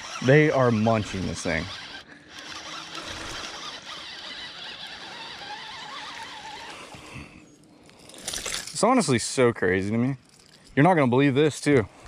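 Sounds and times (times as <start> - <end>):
fishing reel whirring: 0.0 - 7.3.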